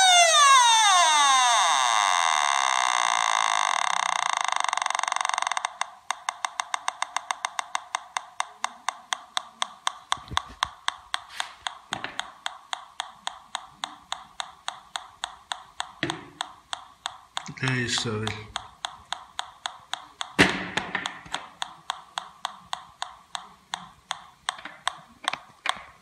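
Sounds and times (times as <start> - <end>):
metal detector buzzing tone: 0.0 - 8.5
metal detector ticking clicks: 3.5 - 25.8.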